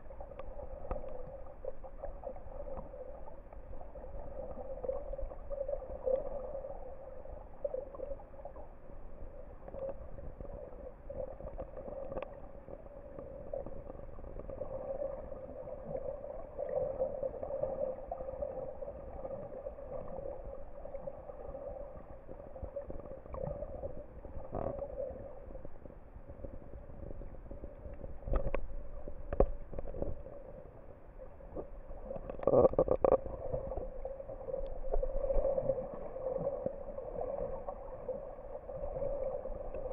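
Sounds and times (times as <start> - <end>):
muffled underwater drone: 0.0 - 39.9
water gurgling and splashing: 0.0 - 39.9.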